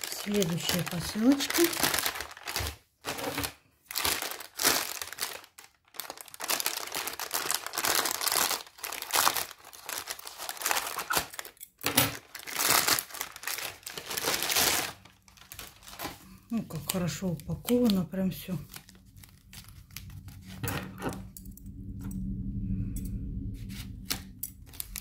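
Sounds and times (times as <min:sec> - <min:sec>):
plastic mailer bag crinkling: 0:00.0 - 0:21.2, 0:24.0 - 0:25.0
scissors cutting plastic: 0:10.0 - 0:14.8, 0:23.7 - 0:25.0.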